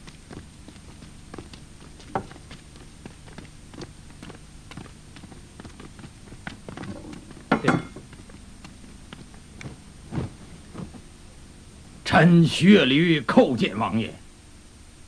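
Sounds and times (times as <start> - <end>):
footsteps on pavement: 0.0 - 11.1
steady low hum: 0.0 - 15.0
shoe scuffing: 6.6 - 11.1.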